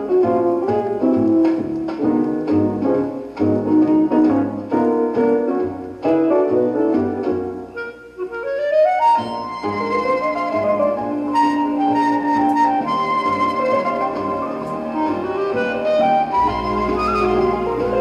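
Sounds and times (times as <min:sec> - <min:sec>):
piano notes: 0:00.0 - 0:18.0
woodwind melody: 0:05.6 - 0:18.0.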